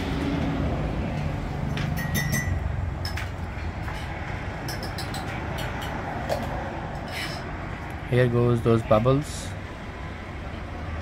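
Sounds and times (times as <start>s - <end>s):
shop background rumble: 0.0s - 11.0s
plastic cups and utensils clinking: 1.8s - 7.5s.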